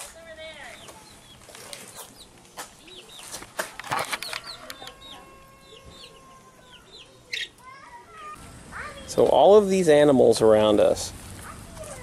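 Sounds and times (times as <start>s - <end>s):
baby chicks peeping: 0.6s - 9.3s.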